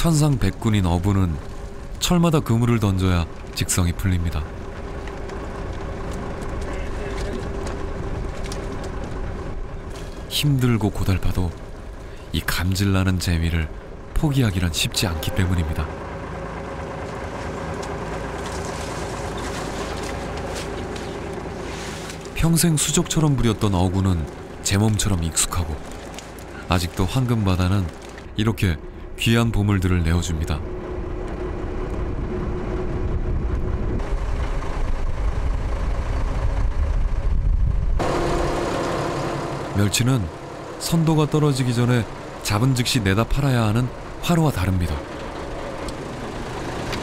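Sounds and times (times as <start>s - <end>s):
boat engine humming: 0.0s - 47.0s.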